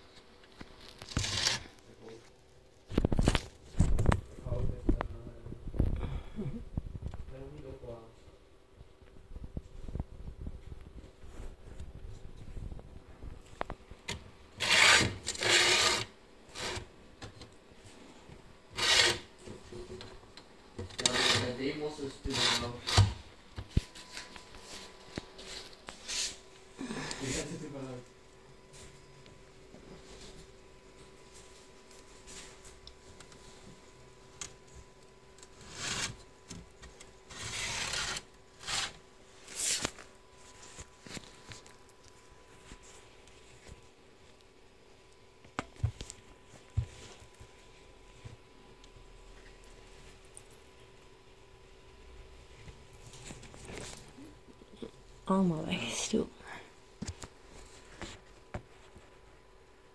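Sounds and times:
phone rubbing against leaves and glass: 37.3s - 39.9s.

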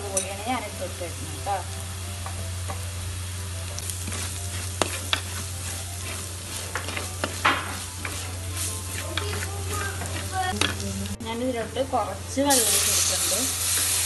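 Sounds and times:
spices sizzling in a pan: 0.0s - 14.0s
spoon scraping a pan: 3.9s - 11.0s.

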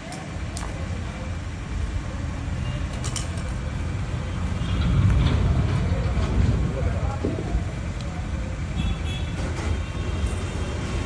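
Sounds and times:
steady low rumble: 3.4s - 8.8s.

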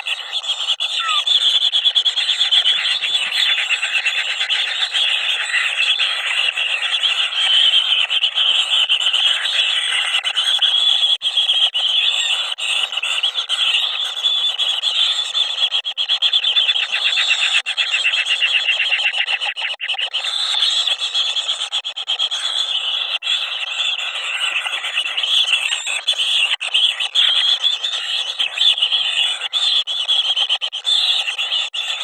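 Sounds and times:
nestlings buzzy begging calls: 0.0s - 10.4s.

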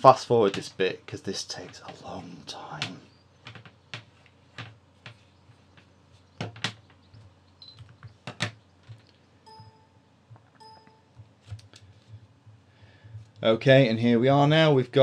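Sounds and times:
short electronic beeps: 9.5s - 10.0s, 10.6s - 11.2s.

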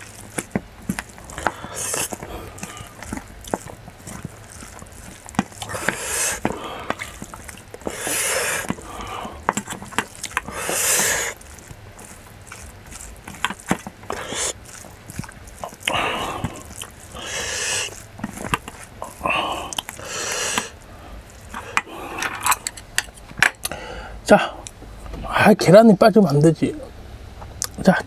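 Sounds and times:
breaths through the nose: 1.2s - 9.6s, 10.3s - 11.5s, 14.1s - 22.6s.

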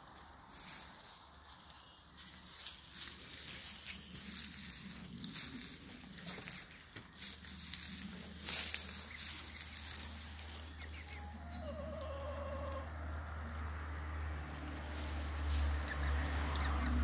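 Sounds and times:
leaves rustling: 0.0s - 13.6s, 14.5s - 17.0s
hen low wavering call: 10.9s - 12.9s.

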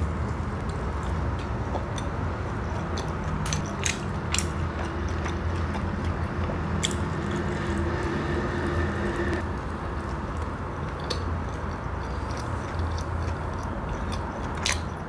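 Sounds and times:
low hum: 4.1s - 10.8s
chewing crispy fried snack: 9.6s - 15.0s.

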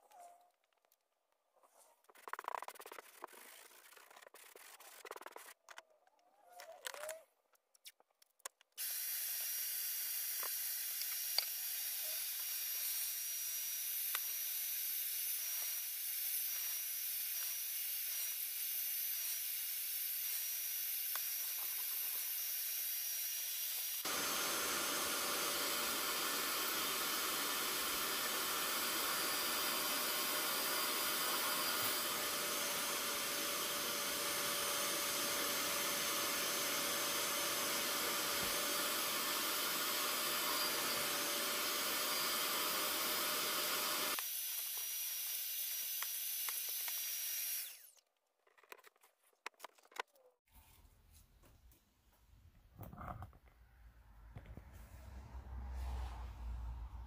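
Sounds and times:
carpet cleaner motor running: 24.0s - 44.4s.

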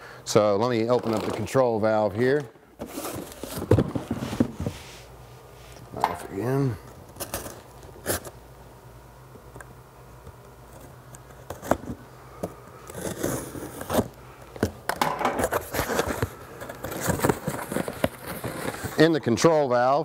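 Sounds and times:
cardboard and tape crinkling: 15.4s - 19.2s.

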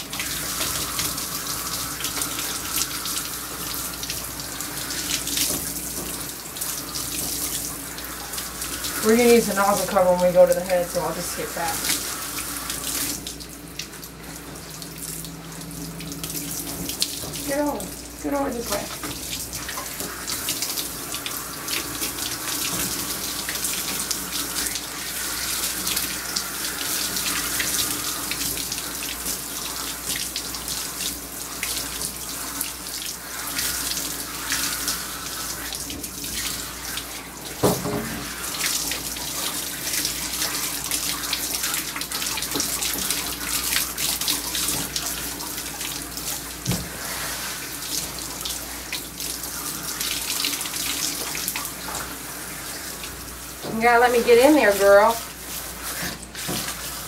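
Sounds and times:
water spraying onto dog's coat: 0.0s - 57.0s.

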